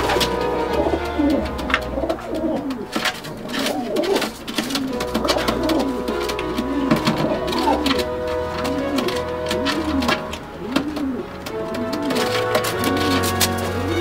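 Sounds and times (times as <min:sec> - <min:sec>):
pigeons cooing: 0:00.0 - 0:14.0.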